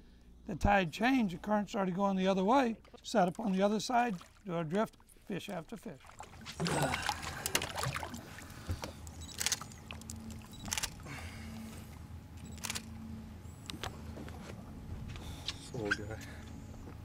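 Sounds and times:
boat engine humming: 0.0 - 17.0
water splashing: 3.2 - 10.5.

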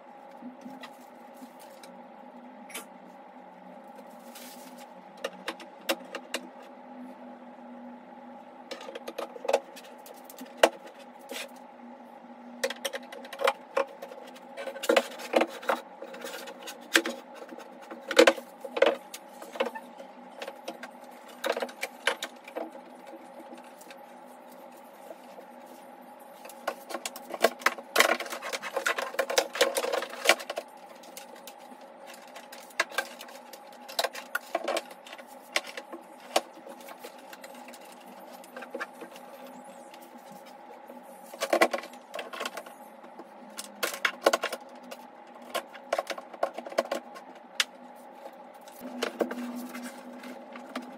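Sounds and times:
steady low hum: 0.0 - 50.9
computer hardware being handled: 26.3 - 40.6.

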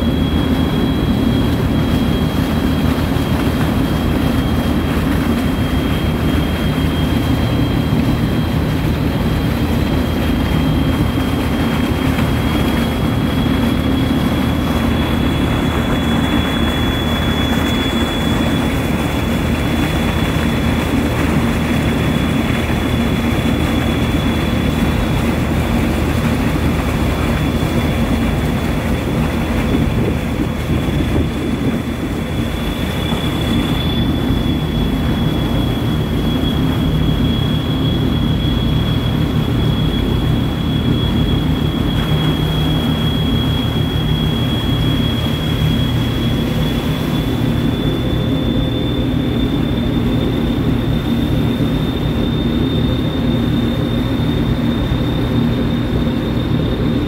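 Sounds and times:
churning wake water: 0.0 - 57.0
ferry engines droning: 0.0 - 57.0
thin high whine: 0.0 - 57.0.

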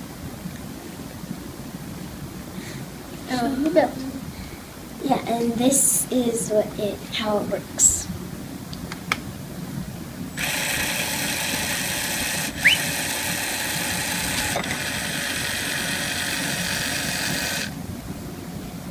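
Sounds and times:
electric motor whirring: 10.4 - 17.8
short rising squeak: 12.5 - 13.2.

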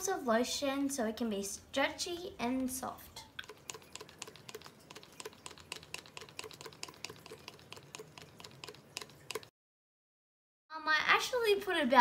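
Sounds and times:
lotion pump clicking: 3.4 - 9.5.

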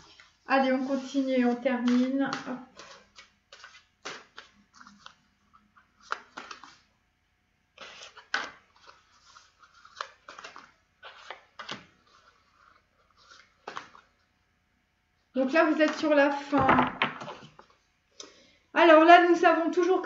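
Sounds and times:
cards being shuffled: 0.0 - 6.9, 7.8 - 14.2.

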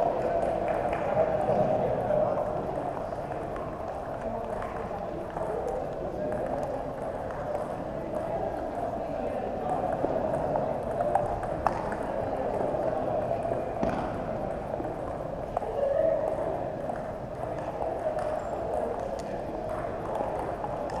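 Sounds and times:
ping-pong ball clicks: 16.3 - 21.0.

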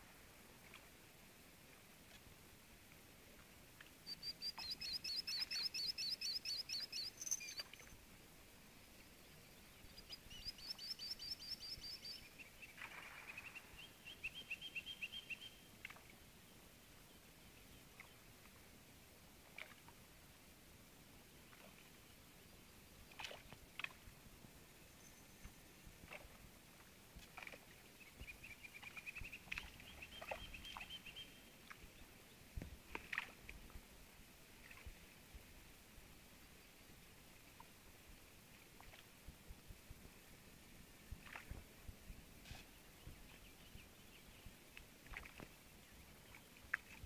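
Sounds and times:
songbird chirping: 3.8 - 18.4, 24.6 - 26.3, 27.4 - 33.3, 42.5 - 47.0.

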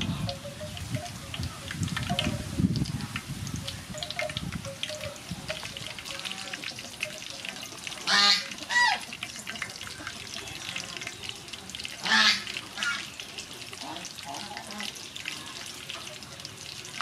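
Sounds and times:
loud honking calls: 8.0 - 9.1.

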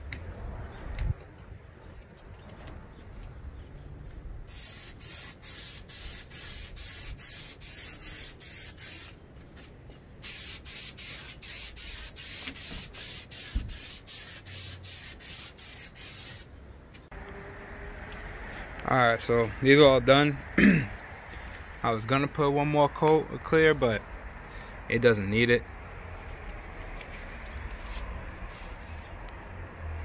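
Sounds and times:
aerosol spray can hissing: 4.5 - 9.1, 10.2 - 16.5.

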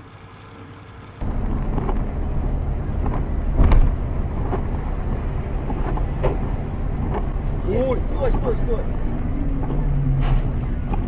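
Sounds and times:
car road and engine rumble: 0.0 - 11.0
loud thump: 3.5 - 4.6.

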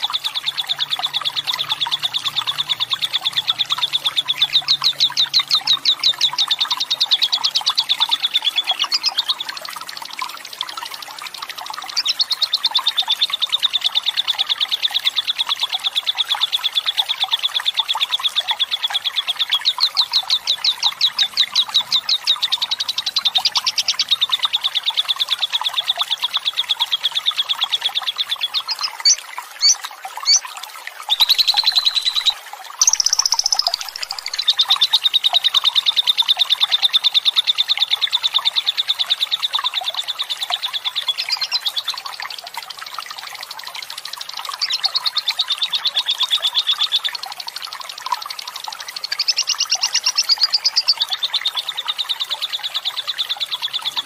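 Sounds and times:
bird chirps: 28.5 - 30.4, 31.1 - 34.8, 41.0 - 41.6
lovebird rattling trill: 31.1 - 34.5.

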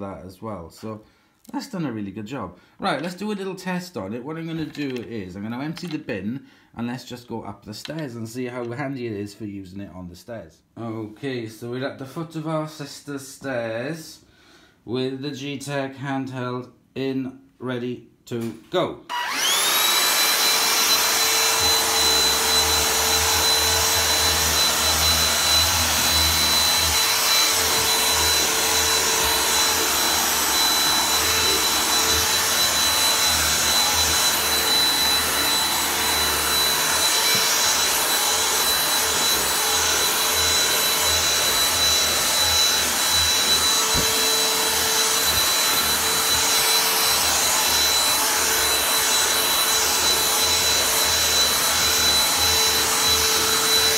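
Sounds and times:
handheld vacuum cleaner whine: 19.1 - 53.9.

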